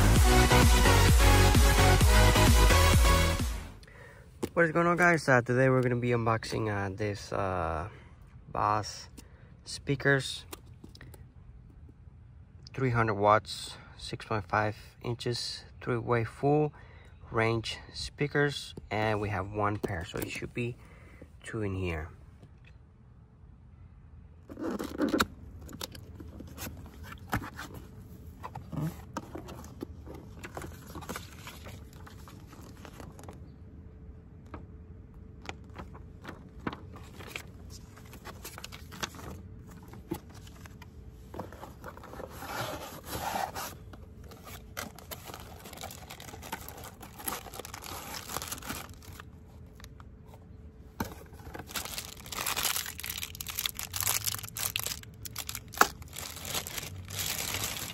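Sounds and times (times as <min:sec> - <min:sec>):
paper and plastic bags rustling: 0:26.1 - 0:33.4, 0:35.5 - 0:50.0, 0:51.0 - 0:57.9
cardboard flaps scraping: 0:41.3 - 0:49.2.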